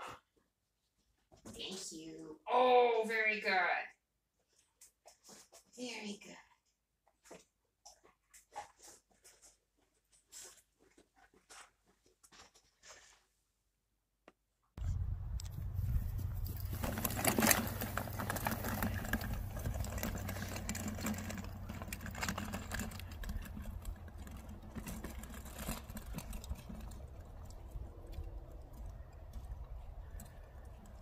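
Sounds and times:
wagon rattling over grass: 0:15.6 - 0:31.0.

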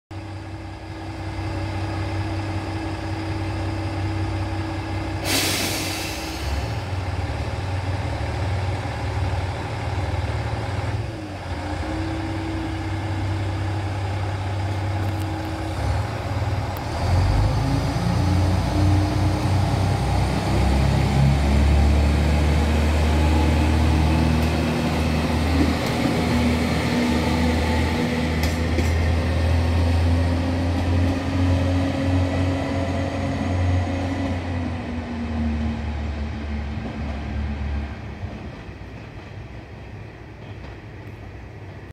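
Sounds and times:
diesel railcar engine: 0:00.1 - 0:41.9
short burst of hiss: 0:05.2 - 0:06.8.

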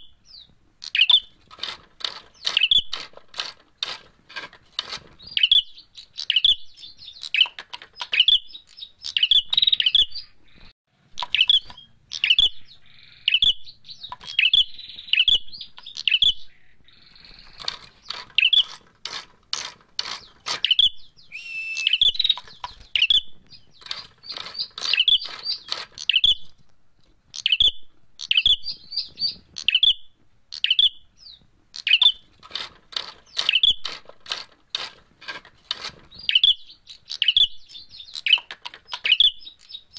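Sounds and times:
bird chirping sharply: 0:00.0 - 0:01.4, 0:05.2 - 0:18.7, 0:20.2 - 0:26.5, 0:27.4 - 0:32.2
bamboo cage clicks and rattles: 0:00.9 - 0:05.6, 0:07.3 - 0:09.2, 0:17.4 - 0:20.9, 0:22.2 - 0:23.2, 0:23.8 - 0:27.6, 0:31.8 - 0:37.3, 0:38.2 - 0:39.8.

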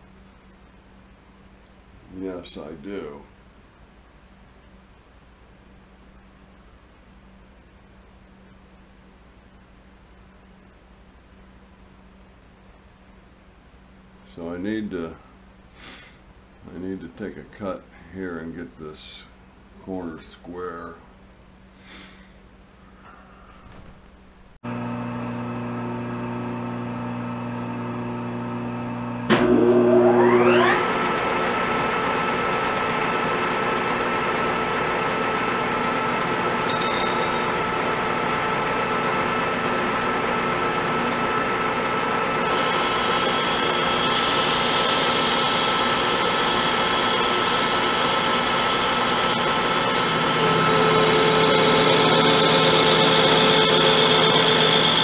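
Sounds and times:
lathe motor hum: 0:24.7 - 0:55.0
lathe spindle whine: 0:24.7 - 0:55.0
lathe tool cutting metal: 0:42.4 - 0:55.0.

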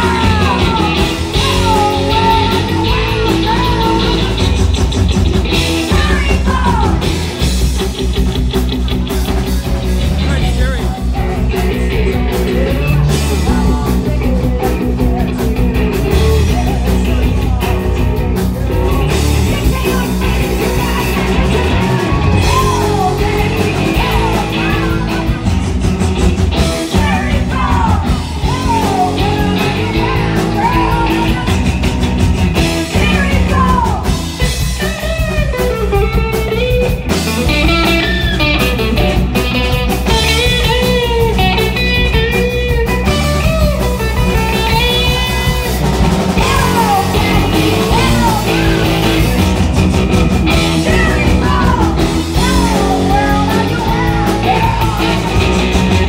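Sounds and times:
person singing: 0:00.0 - 0:04.8, 0:10.2 - 0:25.6, 0:26.6 - 0:32.0, 0:43.6 - 0:49.6, 0:50.5 - 0:56.0
bass guitar: 0:00.0 - 0:56.0
drums: 0:00.0 - 0:56.0
electric guitar: 0:00.0 - 0:56.0.

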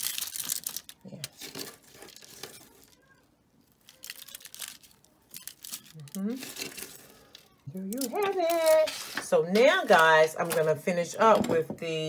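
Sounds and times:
aluminium foil crinkling: 0:00.0 - 0:10.6
metal spoon moving through food: 0:00.9 - 0:10.0.

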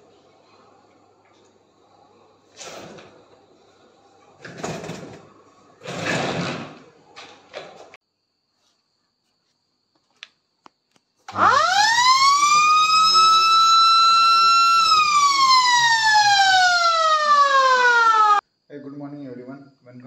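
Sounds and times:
siren wailing: 0:11.3 - 0:18.4.

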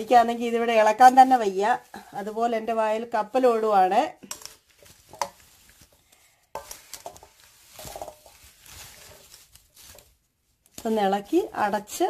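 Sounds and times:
wooden spatula scraping a bowl: 0:00.0 - 0:02.7, 0:03.4 - 0:10.2.

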